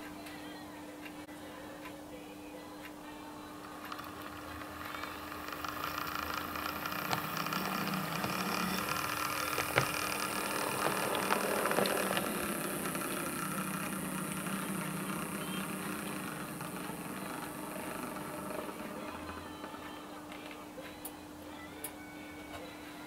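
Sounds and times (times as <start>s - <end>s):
model train motor and wheels: 3.8s - 19.6s
wheels clicking over rail joints: 4.2s - 19.3s.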